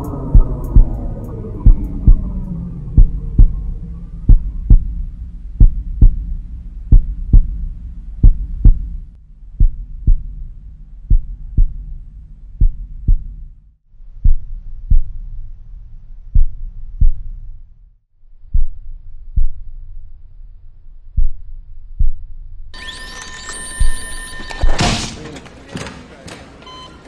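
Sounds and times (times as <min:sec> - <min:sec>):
heartbeat thumps: 0:00.0 - 0:15.4, 0:16.2 - 0:17.5, 0:18.4 - 0:19.7, 0:21.0 - 0:22.5
low droning hum: 0:00.0 - 0:22.8.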